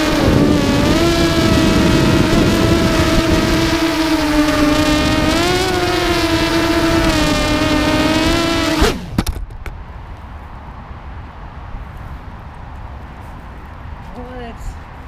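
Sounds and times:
drone motors whining: 0.0s - 9.4s.

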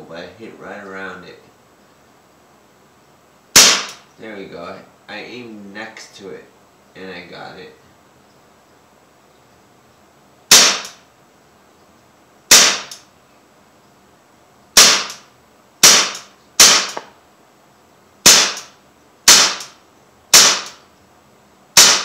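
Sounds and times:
pistol shots cracking: 3.5s - 4.0s, 10.5s - 11.0s, 12.5s - 13.0s, 14.8s - 17.1s, 18.2s - 20.8s, 21.8s - 22.0s.

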